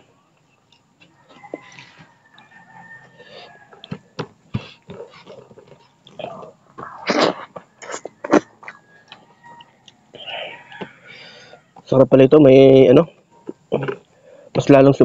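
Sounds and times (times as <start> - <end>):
wet chewing and smacking: 3.7 - 11.0.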